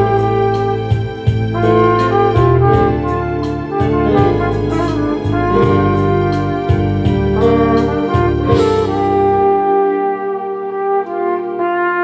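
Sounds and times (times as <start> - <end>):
backing track with bass and percussion: 0.0 - 9.6
flugelhorn melody: 0.0 - 12.0.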